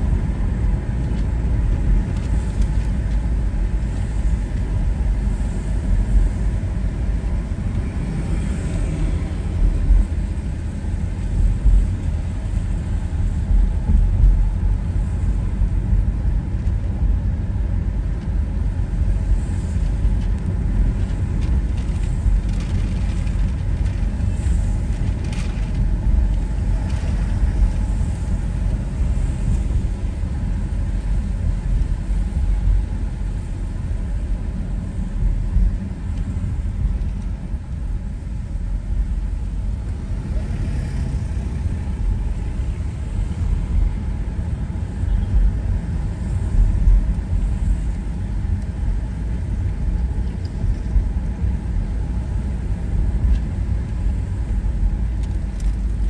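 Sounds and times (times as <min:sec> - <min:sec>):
engine and road noise rumble: 0:00.0 - 0:56.0
tyre hiss on wet road: 0:19.1 - 0:20.0, 0:24.1 - 0:25.3, 0:26.3 - 0:35.1, 0:45.9 - 0:49.4.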